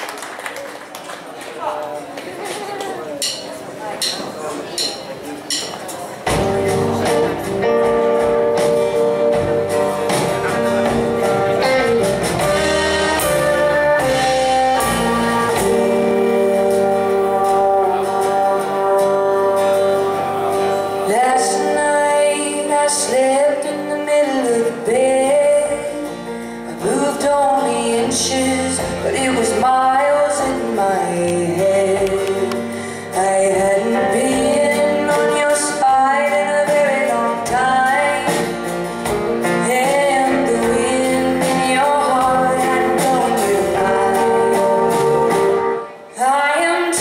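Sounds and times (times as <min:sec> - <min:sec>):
acoustic guitar: 0:02.0 - 0:47.0
keyboard: 0:03.0 - 0:47.0
electric guitar: 0:06.2 - 0:47.0
electric bass: 0:06.3 - 0:21.1.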